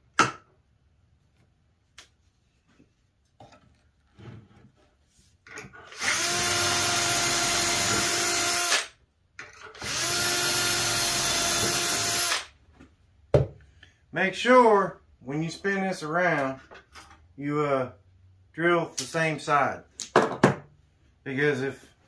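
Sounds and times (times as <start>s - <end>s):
cordless drill boring into wood: 5.9s - 8.9s, 9.8s - 12.5s.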